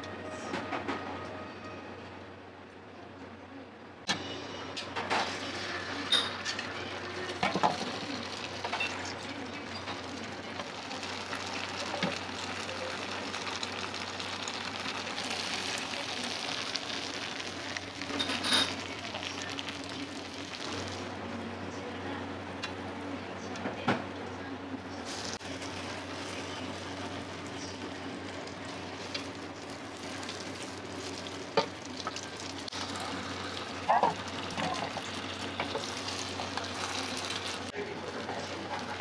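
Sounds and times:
egg sizzling in a pan: 5.1 - 21.1, 25.1 - 39.0.

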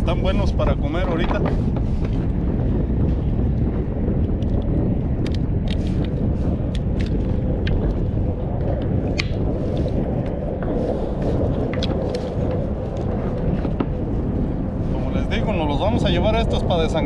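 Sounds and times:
wind buffeting microphone: 0.0 - 17.0
sharp clicks and taps: 9.2 - 9.4.

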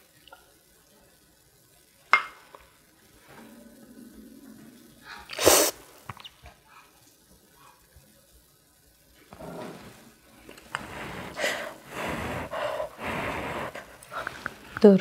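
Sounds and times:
person eating porridge: 3.2 - 7.0, 9.2 - 14.9
loud breathy burst: 10.6 - 14.6.

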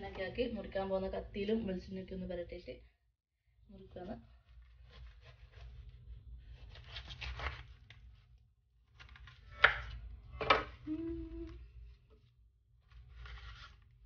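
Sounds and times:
knife slicing fruit rind: 4.5 - 7.7.

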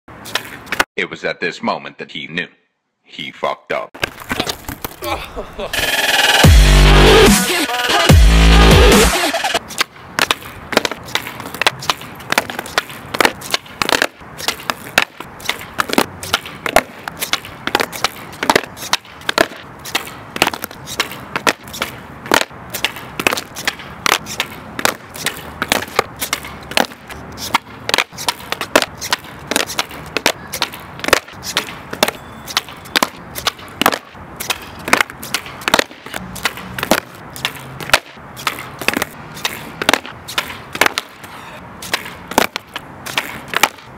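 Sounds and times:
skateboard tail snapping: 9.8 - 43.9.

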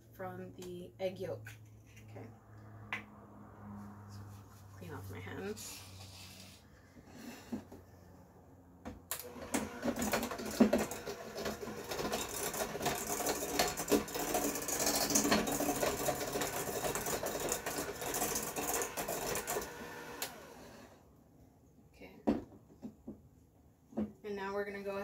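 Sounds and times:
electric hand mixer whirring: 9.1 - 21.0.

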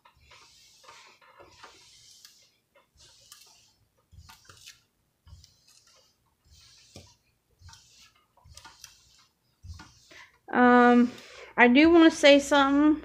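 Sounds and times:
hands rubbing plastic film: 0.0 - 10.2.

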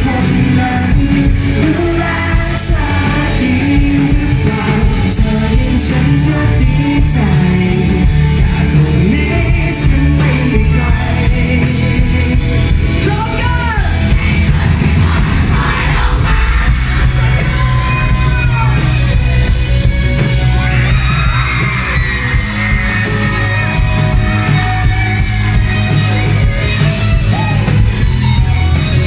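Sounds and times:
man singing: 0.0 - 15.6
live rock band: 0.0 - 29.0.

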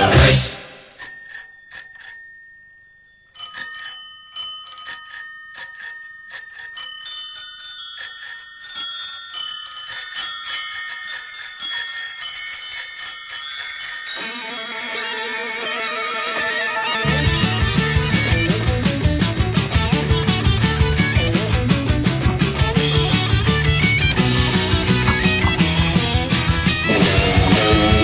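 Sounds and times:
rock band playing: 0.0 - 0.6, 16.9 - 28.0
bicycle bells ringing: 1.0 - 28.0.

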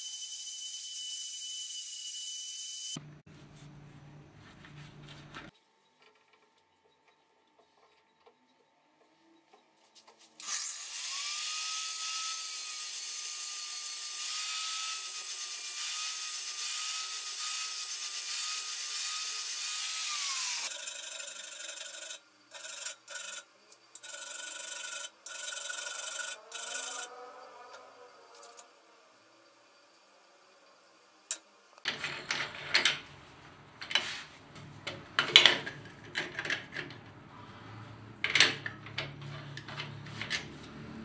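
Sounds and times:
rotary tool grinding steel: 10.4 - 31.4.

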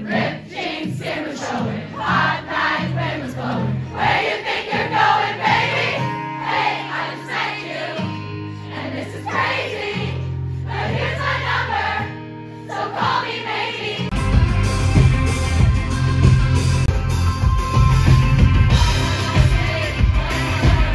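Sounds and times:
audience singing along: 0.0 - 14.2, 18.7 - 20.9
low keyboard chords: 14.1 - 20.9
recorded song with guitar and drums: 14.1 - 20.9.

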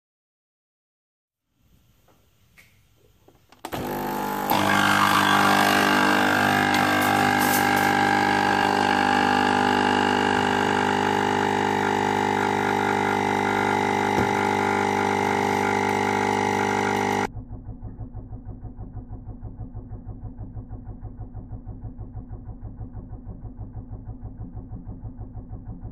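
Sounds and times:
coffee machine pump humming: 3.6 - 17.3.

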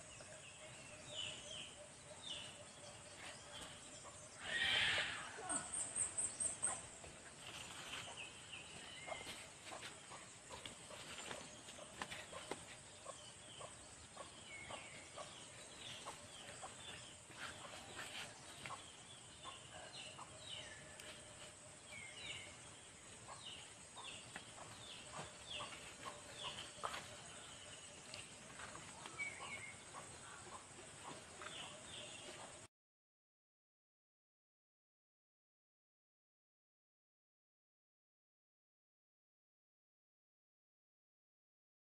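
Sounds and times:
chickens chirping and clucking: 5.0 - 32.7.

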